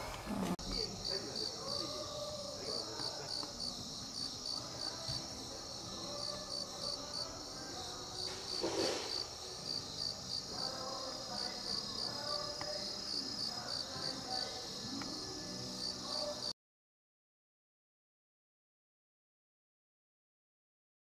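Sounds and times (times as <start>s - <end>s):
insects chirping: 0.0s - 16.5s
brief rush of noise: 8.3s - 9.3s.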